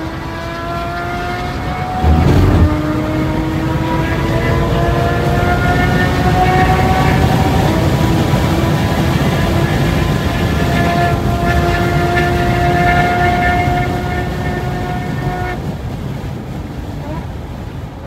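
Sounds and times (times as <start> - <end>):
wind and road noise: 0.0 - 18.0
electric motor whining: 2.0 - 2.9.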